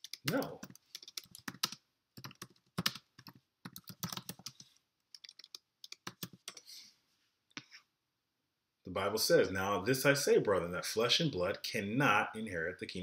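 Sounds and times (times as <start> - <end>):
typing on a computer keyboard: 0.0 - 6.6.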